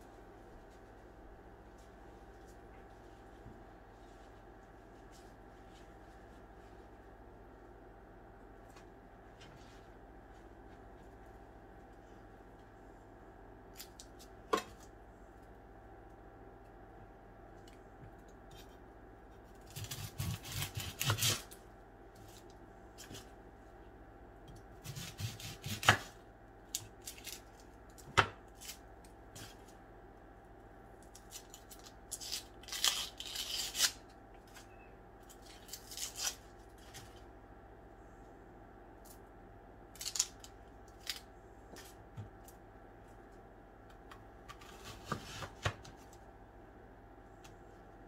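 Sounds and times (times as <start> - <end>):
knife cutting onion: 19.6 - 21.6, 24.5 - 26.2
onion skin tearing: 31.1 - 34.1, 35.3 - 36.9, 39.9 - 41.3.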